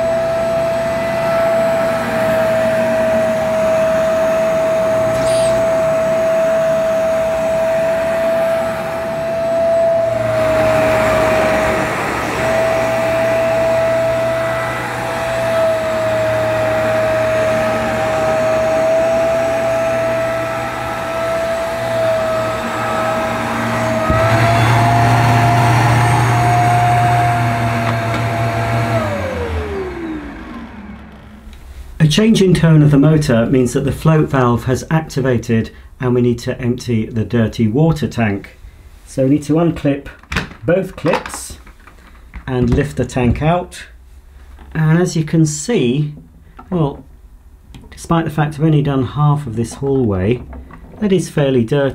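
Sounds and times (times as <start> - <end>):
carpet washer motor whine: 0.0 - 34.4.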